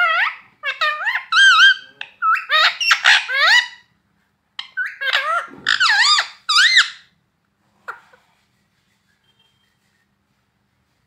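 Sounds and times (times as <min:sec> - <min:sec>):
parakeet high calls: 0:00.0 - 0:03.9, 0:04.6 - 0:07.1.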